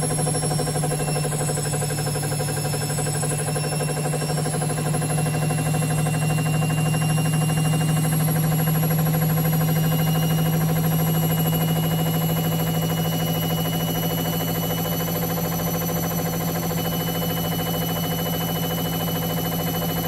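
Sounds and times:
washer dryer motor hum: 0.0s - 20.0s.

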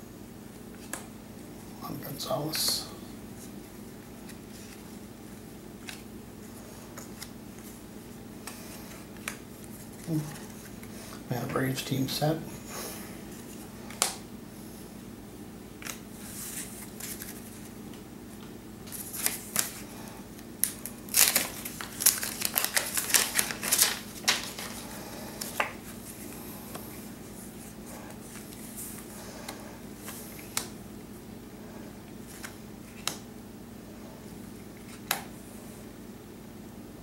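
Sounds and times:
steady low hum: 0.0s - 37.0s
card pack crinkling and ripping: 18.9s - 19.8s, 20.6s - 25.8s.

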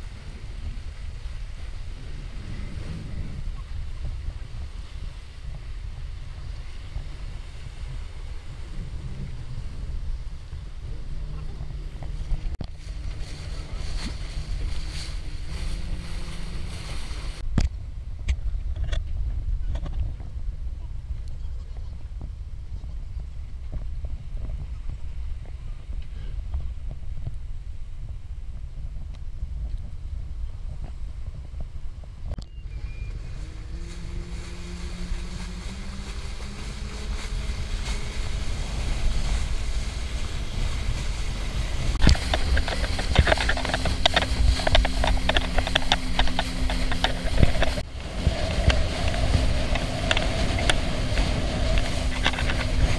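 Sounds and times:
water hissing: 0.0s - 17.4s
water splashing against hull: 0.0s - 17.7s, 31.5s - 52.9s
boat engine rumble: 0.0s - 52.9s
wind buffeting microphone: 0.0s - 52.9s.

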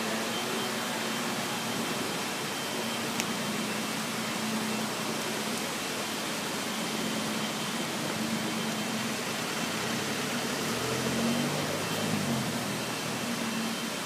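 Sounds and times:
city street hum: 0.0s - 14.0s
vehicle passing: 9.8s - 12.9s.

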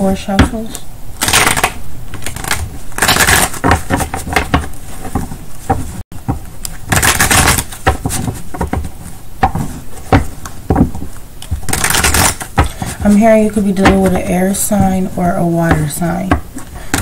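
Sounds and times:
cards being shuffled: 1.2s - 14.2s
cards tapping and clicking: 1.2s - 14.3s.

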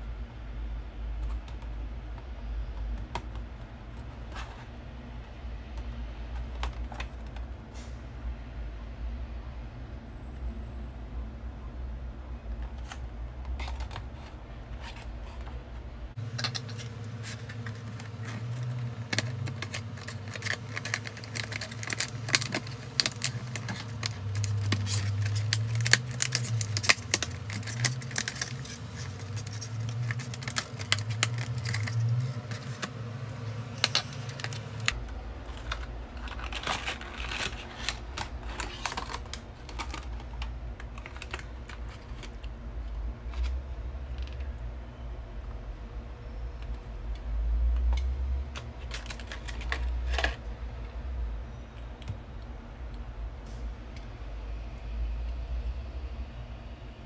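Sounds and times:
plastic packaging crackling: 16.2s - 42.6s, 48.6s - 50.5s.

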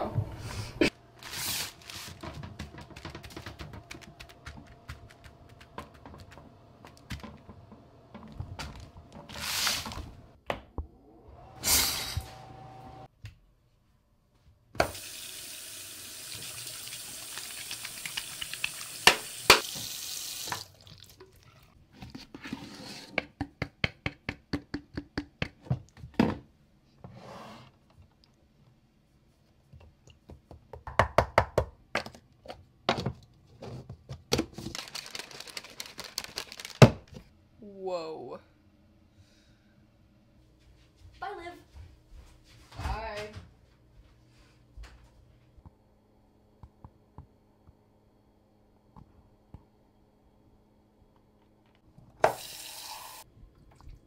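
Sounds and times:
handling noises: 1.0s - 10.4s
tap water pouring into sink: 14.8s - 21.4s, 52.2s - 54.0s.

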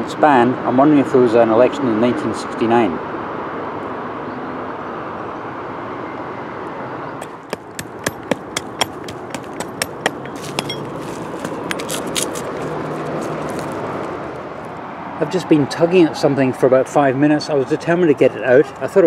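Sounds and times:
steady background noise: 0.0s - 19.0s
digging tool scraping stony soil: 7.2s - 14.4s.

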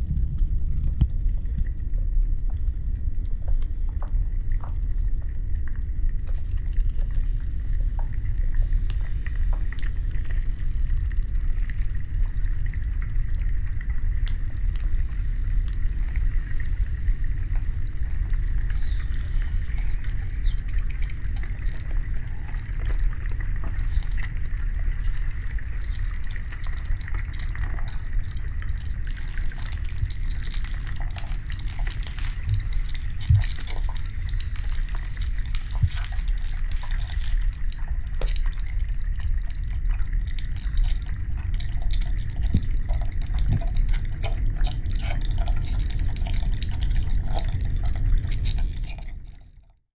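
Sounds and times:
deep ice rumble: 0.0s - 49.8s
ice crackling and popping: 6.2s - 49.2s.

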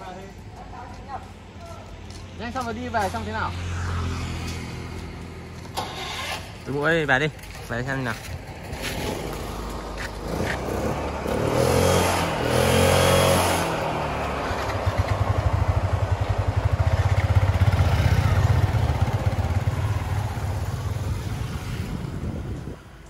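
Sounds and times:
motorcycle engine revving: 3.0s - 7.1s, 8.7s - 22.8s.

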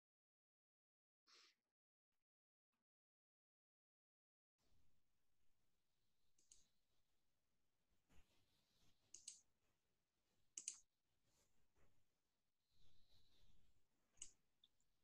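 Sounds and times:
computer mouse clicks: 6.4s - 6.7s, 9.1s - 9.5s, 10.6s - 10.9s, 14.2s - 14.4s.

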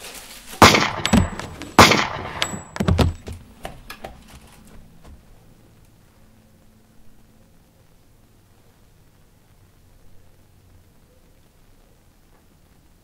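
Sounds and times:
handgun shots: 0.6s - 3.1s.

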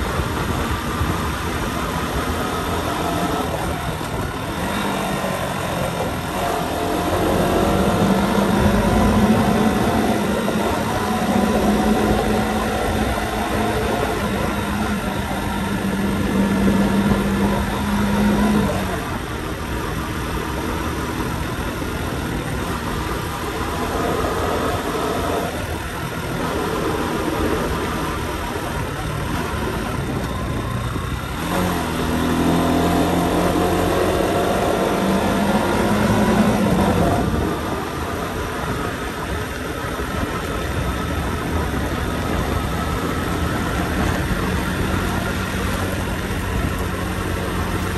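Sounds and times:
motorcycle engine running: 0.0s - 47.9s
wind and road noise: 0.0s - 47.9s.

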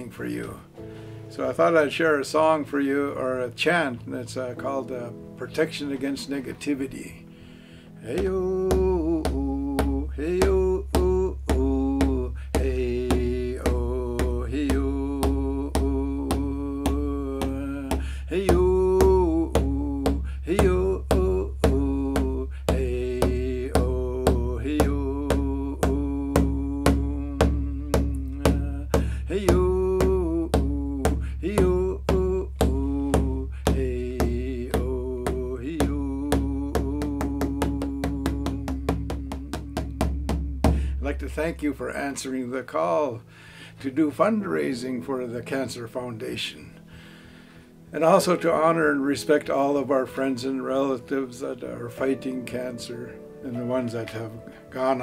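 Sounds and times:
man chanting: 8.0s - 43.2s, 47.9s - 55.0s
hand drum beat: 8.2s - 41.7s.

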